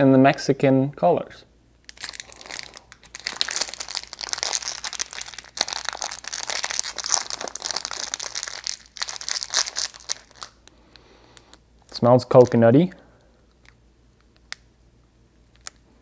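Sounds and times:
plastic wrapper crinkling: 0:01.8 - 0:12.6, 0:15.5 - 0:16.0.

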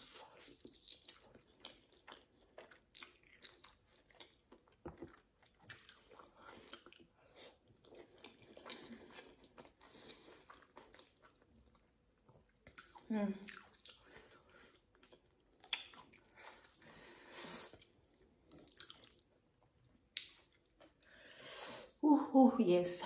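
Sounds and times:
chewing and biting meat: 0:00.4 - 0:16.9, 0:17.8 - 0:19.2.

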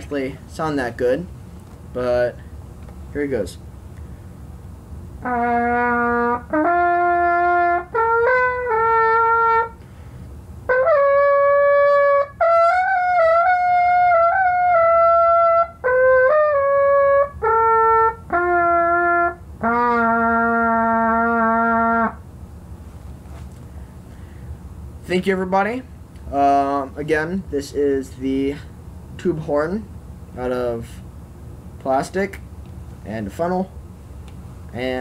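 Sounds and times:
homemade horn playing a tune: 0:05.2 - 0:09.8, 0:10.6 - 0:22.2.

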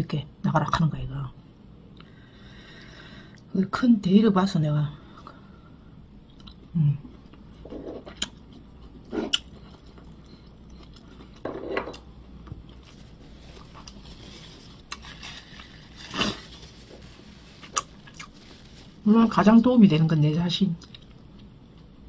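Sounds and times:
person chewing food: 0:06.1 - 0:19.0, 0:20.8 - 0:21.9.

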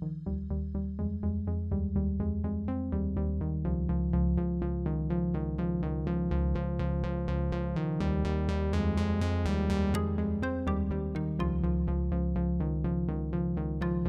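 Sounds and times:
steady low bass: 0:00.0 - 0:14.0
repeating synthesizer notes: 0:08.9 - 0:12.2, 0:13.5 - 0:14.0.

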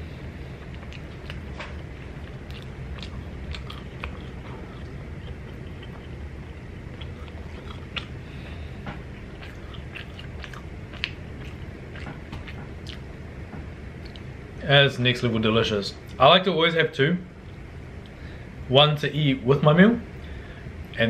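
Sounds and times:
man chewing food: 0:00.0 - 0:14.4
low background hum: 0:00.0 - 0:21.0.

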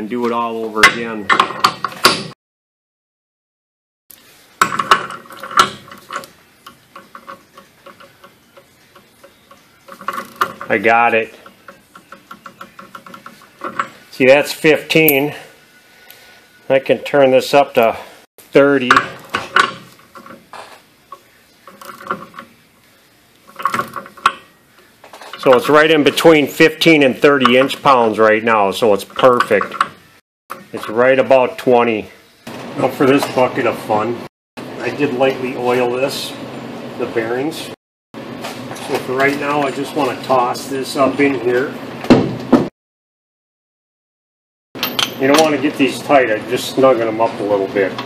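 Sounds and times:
metal wrench clinking and rattling: 0:14.8 - 0:15.4, 0:44.8 - 0:45.6
metal clanks: 0:44.8 - 0:45.6.

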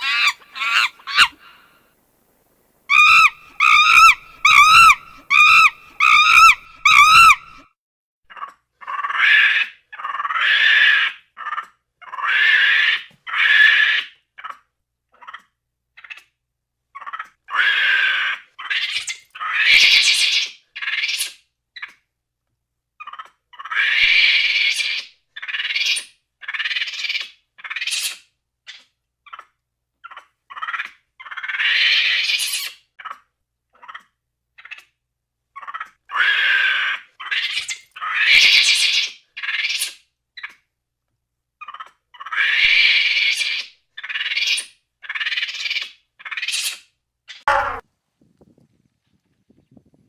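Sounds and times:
monkeys calling: 0:00.0 - 0:01.6, 0:02.9 - 0:07.6, 0:47.4 - 0:47.8.

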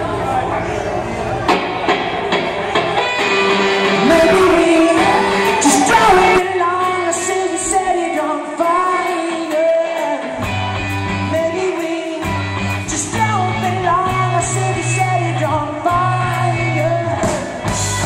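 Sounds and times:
live rock band playing: 0:01.3 - 0:18.0
man singing: 0:03.8 - 0:18.0
low bass notes: 0:10.4 - 0:18.0.

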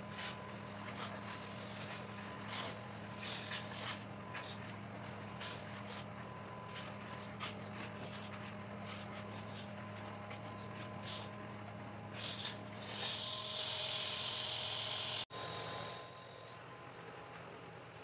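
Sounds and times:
carpet cleaning machine motor hum: 0:00.0 - 0:18.0.

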